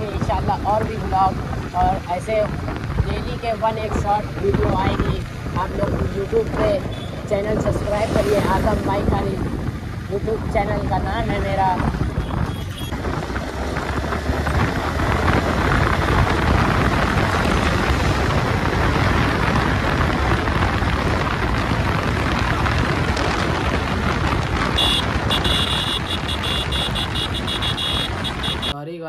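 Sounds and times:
wind buffeting microphone: 0.0s - 28.8s
motorcycle engine: 2.5s - 28.7s.

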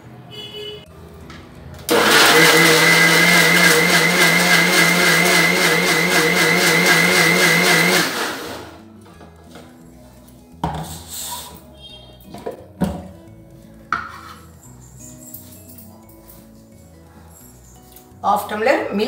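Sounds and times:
mixer grinder motor whining: 1.9s - 8.8s.

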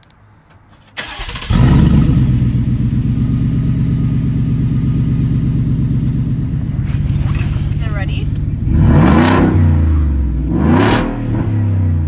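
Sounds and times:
loud engine idling: 1.0s - 10.5s.

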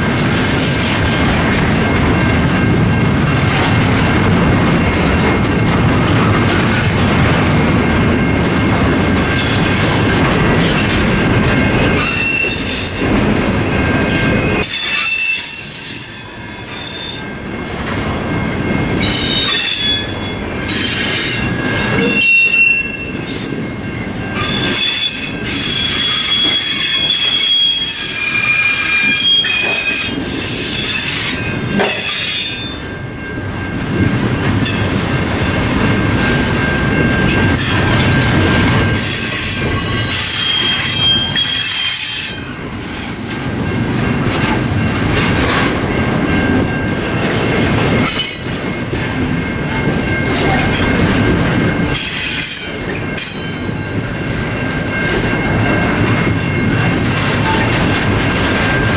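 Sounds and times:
wheels rumbling on rail: 0.0s - 58.9s
train wheels squealing: 11.8s - 13.1s, 14.2s - 17.5s, 19.0s - 23.6s, 24.3s - 33.0s, 38.8s - 43.1s, 46.4s - 49.1s, 49.8s - 54.0s, 55.3s - 56.9s.

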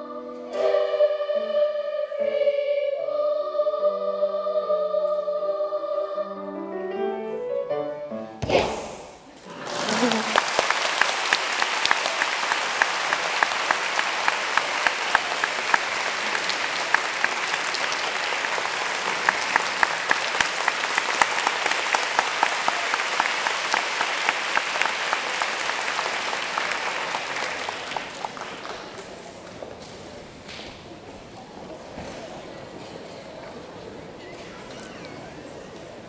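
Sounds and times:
audience applauding: 9.4s - 29.4s
close hand claps: 9.6s - 29.6s.

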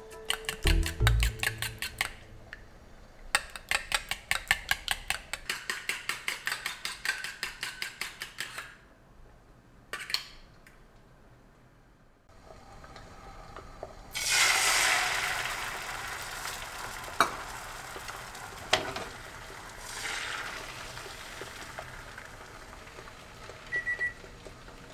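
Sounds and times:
fork whisking in metal bowl: 0.3s - 2.3s.

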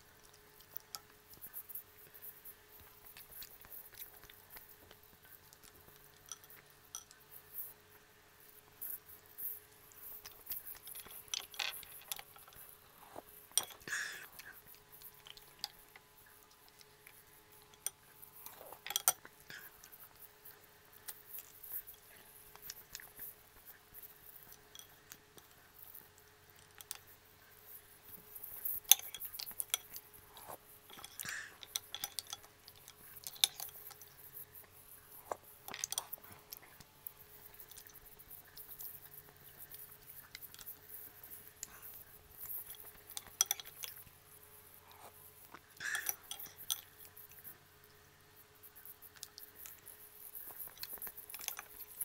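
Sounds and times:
faint steady hum: 0.0s - 52.0s
metal spoon clinking on bowl: 6.1s - 7.2s, 17.7s - 19.3s, 24.7s - 25.0s, 28.8s - 30.0s, 30.9s - 34.0s, 42.5s - 44.0s, 45.8s - 47.0s
mussel shells clicking: 16.5s - 19.7s, 28.4s - 30.2s, 30.8s - 34.2s, 37.6s - 44.1s, 45.8s - 47.0s.

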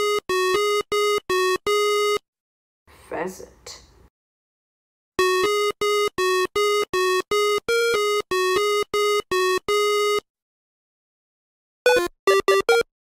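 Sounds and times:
chiptune beeping tune: 0.0s - 2.2s, 5.2s - 10.2s, 11.9s - 12.9s.

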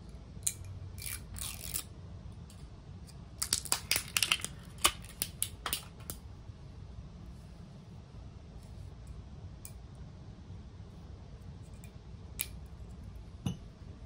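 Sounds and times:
seal tearing with crackling snaps: 3.4s - 6.2s.

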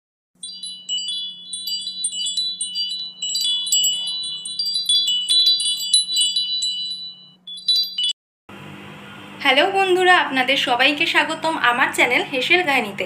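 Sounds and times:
wind chimes tinkling: 0.4s - 8.2s.

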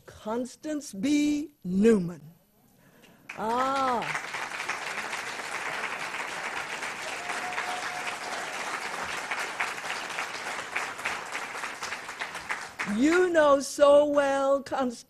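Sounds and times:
audience applauding: 3.3s - 13.2s.

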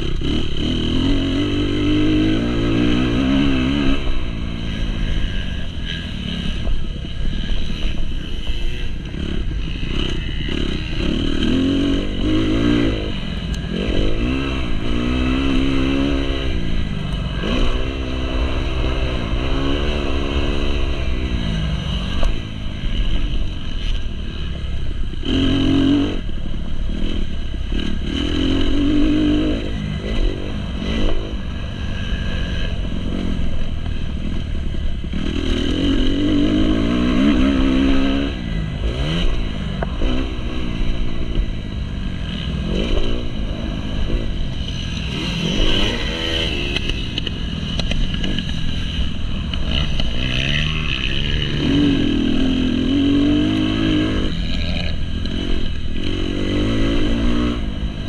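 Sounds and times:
motocross engine revving: 0.0s - 58.0s.

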